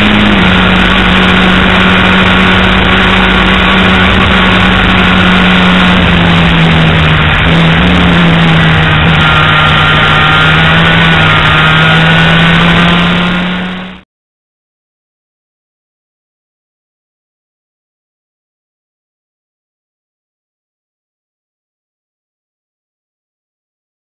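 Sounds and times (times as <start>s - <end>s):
loud rushing noise: 0.0s - 14.0s
race engine at speed: 0.0s - 14.0s.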